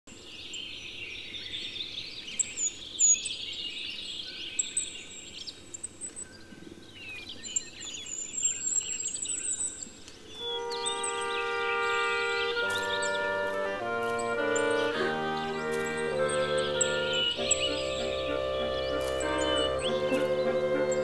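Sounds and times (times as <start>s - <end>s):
birds chirping and twittering: 0.1s - 21.0s
high thin whistled bird notes: 7.2s - 21.0s.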